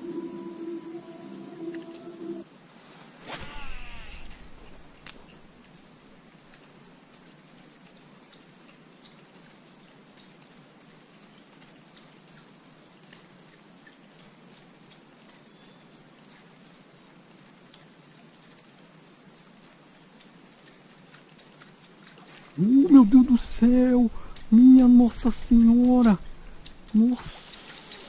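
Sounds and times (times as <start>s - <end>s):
high-pitched hum: 0.0s - 2.4s, 3.3s - 5.6s, 22.6s - 28.0s
soft ticks: 6.5s - 22.2s, 22.9s - 28.0s.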